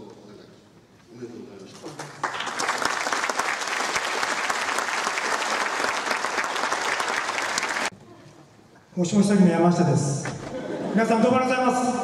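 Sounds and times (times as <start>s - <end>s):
audience applauding: 1.9s - 7.9s.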